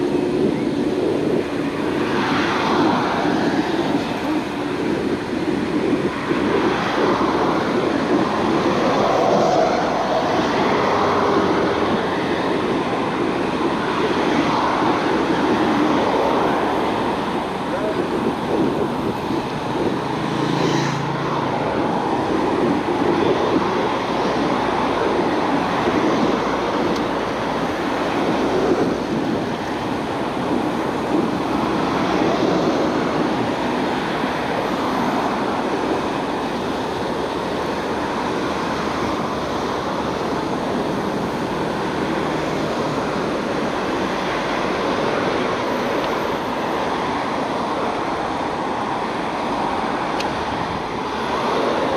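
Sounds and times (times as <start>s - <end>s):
bicycle tyres rolling on pavement: 0.0s - 51.9s
wind on microphone: 0.0s - 51.9s.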